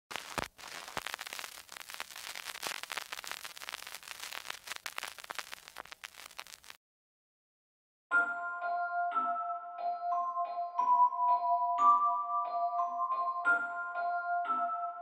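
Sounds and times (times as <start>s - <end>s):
record crackle over hiss: 0.0s - 6.8s.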